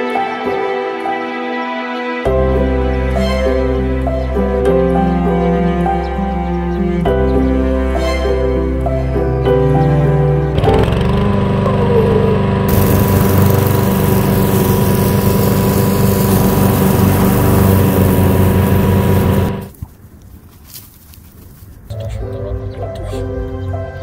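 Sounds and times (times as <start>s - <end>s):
lawn mower engine running: 10.5s - 19.7s.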